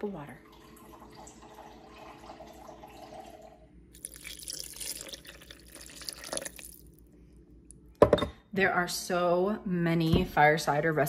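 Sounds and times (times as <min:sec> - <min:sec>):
water running into a cup: 0:00.4 - 0:07.0
water poured into a blender jar: 0:00.5 - 0:07.0.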